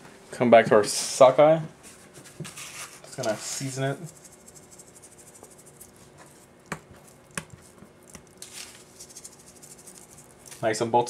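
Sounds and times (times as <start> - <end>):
salt grains pattering: 3.1 - 10.9.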